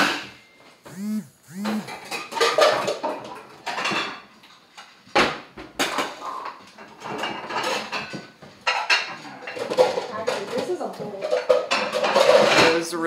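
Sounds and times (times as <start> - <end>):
dishes and cutlery clattering: 2.1 - 5.0, 5.7 - 12.8.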